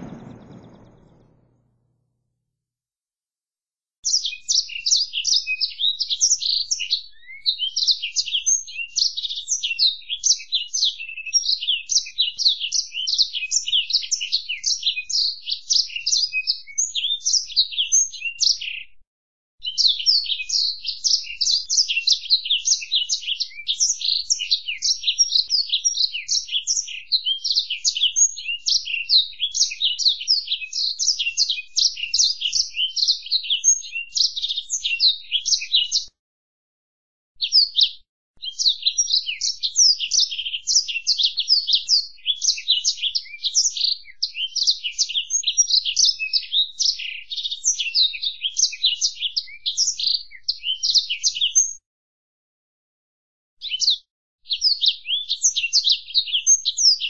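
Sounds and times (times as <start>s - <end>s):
bird twittering song: 0.0s - 1.5s.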